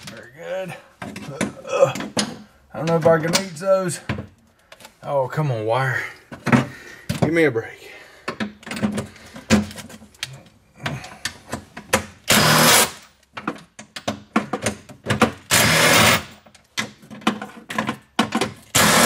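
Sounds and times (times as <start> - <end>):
cordless impact driver running: 12.3 - 12.9, 15.5 - 16.3, 18.7 - 19.0.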